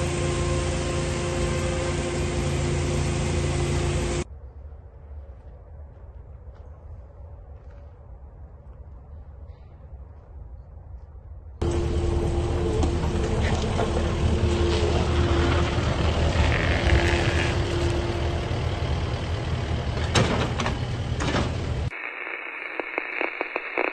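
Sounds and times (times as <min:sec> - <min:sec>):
diesel engine running: 0:00.0 - 0:04.3, 0:11.6 - 0:21.9
engine whine: 0:00.0 - 0:04.5, 0:11.6 - 0:22.0
crackling static: 0:21.9 - 0:23.9.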